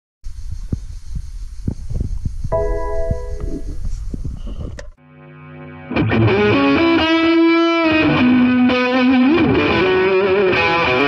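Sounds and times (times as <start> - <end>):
distorted electric guitar music: 2.6 - 3.8, 5.0 - 11.0.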